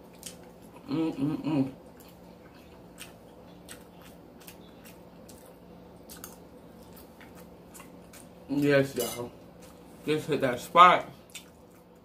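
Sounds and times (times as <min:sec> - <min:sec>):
chewing with wet mouth clicks: 0:01.8 - 0:08.4, 0:11.2 - 0:12.0.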